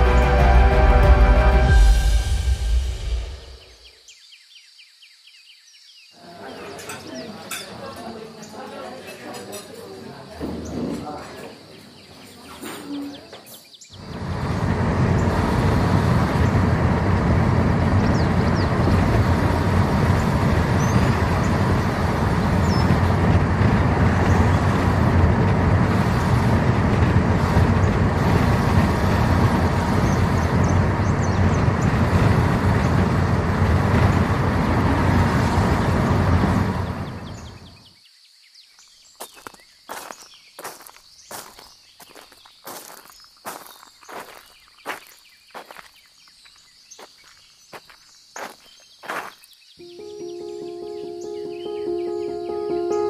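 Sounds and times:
loud low rushing noise: 0.0s - 4.0s, 14.0s - 37.7s
footsteps: 39.2s - 49.5s.

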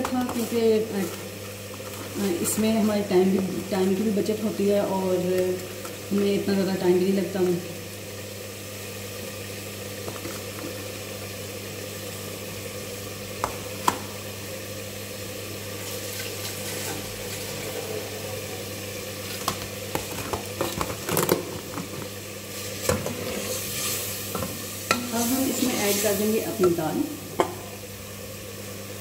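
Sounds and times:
spices sizzling in a pot: 0.0s - 29.0s.

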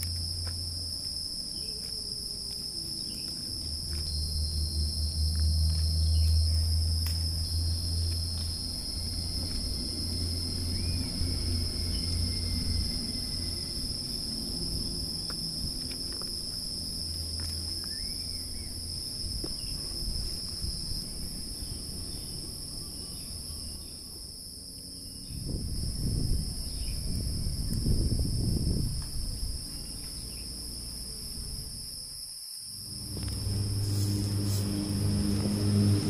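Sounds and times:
low rumbling: 0.0s - 24.3s, 32.8s - 36.0s
insects buzzing: 0.0s - 36.0s.

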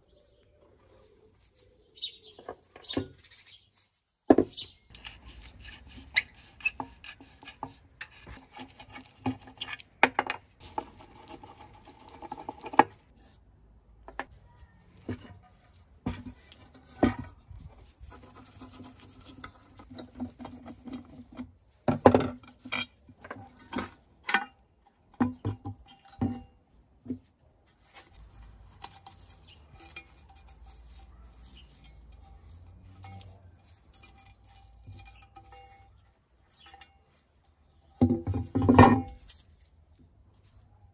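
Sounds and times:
steel clinks knocks and scrapes: 28.8s - 39.4s.

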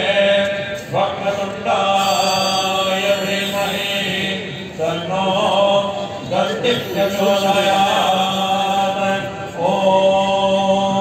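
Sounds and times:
hymn chanted to a melody: 0.0s - 11.0s
low drone: 1.8s - 9.7s.

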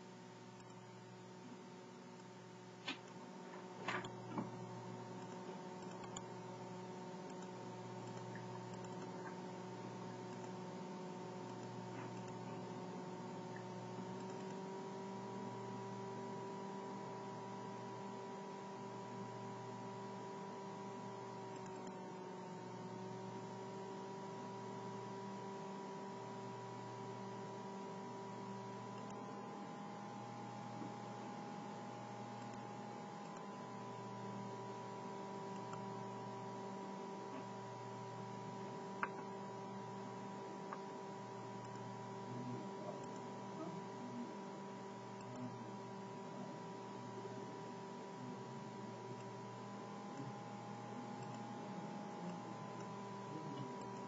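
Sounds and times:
electrical hum: 0.0s - 54.0s
mouse clicks: 2.2s - 4.5s, 5.2s - 6.3s, 7.2s - 9.4s, 10.3s - 10.6s, 11.4s - 12.6s, 13.5s - 14.6s, 21.5s - 22.0s, 28.9s - 29.2s, 32.3s - 33.6s, 35.5s - 35.9s, 39.0s - 39.4s, 41.6s - 41.9s, 51.2s - 51.5s.

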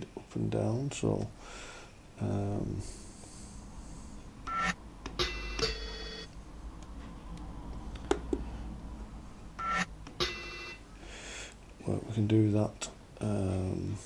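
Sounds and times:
short metallic beep-like tones: 4.5s - 6.3s, 9.6s - 10.8s.

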